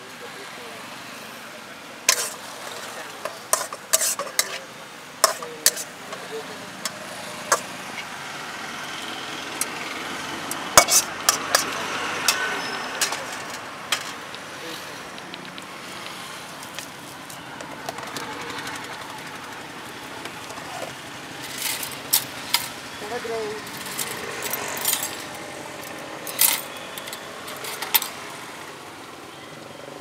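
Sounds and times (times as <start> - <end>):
food stall background noise: 0.0 - 30.0
metal spatula scraping a wok: 2.1 - 6.2, 10.8 - 14.2.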